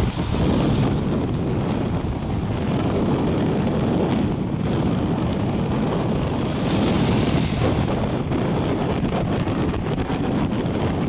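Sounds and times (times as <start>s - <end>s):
wind buffeting microphone: 0.0s - 11.0s
surf breaking: 4.6s - 10.0s.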